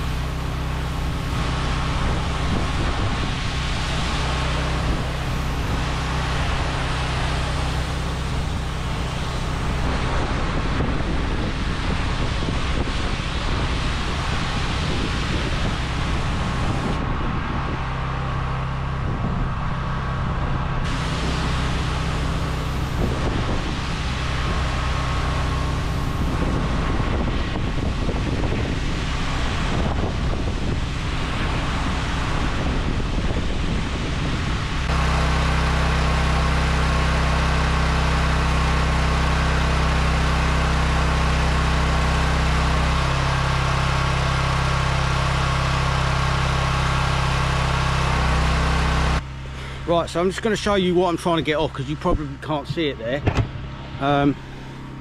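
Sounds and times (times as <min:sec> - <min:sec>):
water spray hissing: 0:00.0 - 0:10.2, 0:20.9 - 0:26.9
pressure washer engine running: 0:00.0 - 0:55.0.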